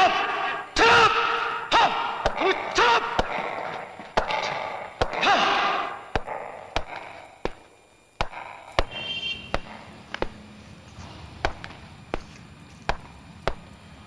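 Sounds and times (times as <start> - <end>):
voice-like wail: 0.0 - 7.4.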